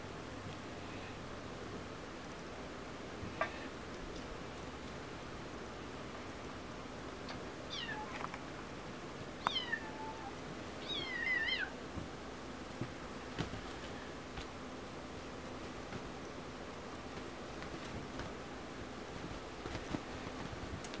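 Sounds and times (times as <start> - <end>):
kitten meowing: 7.7 - 8.2, 9.4 - 11.7.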